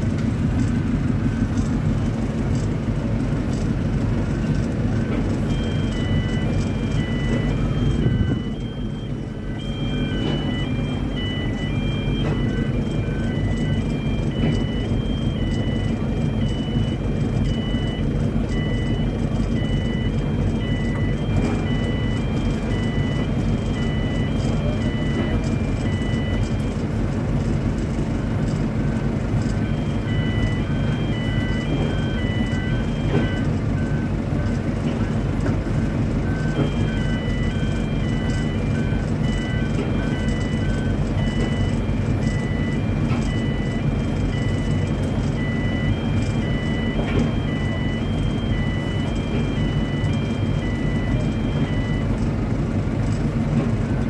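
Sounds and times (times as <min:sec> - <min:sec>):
heavy machinery engine rumbling: 0:00.0 - 0:54.0
electronic beeping tune: 0:05.0 - 0:26.9, 0:29.5 - 0:34.1, 0:36.2 - 0:52.2.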